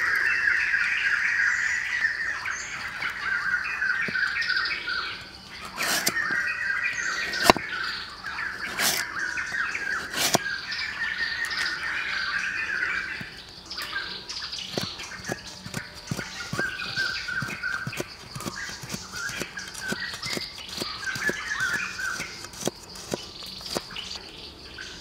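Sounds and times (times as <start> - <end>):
birds chattering and chirping: 0.0 - 25.0
cleaver chopping on wooden block: 5.8 - 6.4, 7.3 - 7.6, 8.7 - 9.0, 10.1 - 10.4, 14.7 - 23.9.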